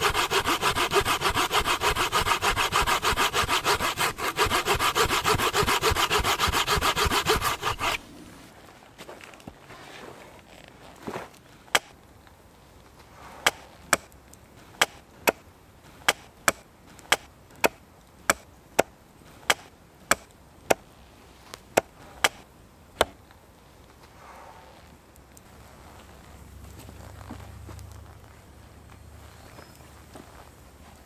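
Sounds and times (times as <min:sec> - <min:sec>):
axe chopping wood: 0:11.7 - 0:11.9, 0:13.4 - 0:14.2, 0:14.8 - 0:15.4, 0:16.0 - 0:20.8, 0:21.8 - 0:22.4, 0:23.0 - 0:23.2.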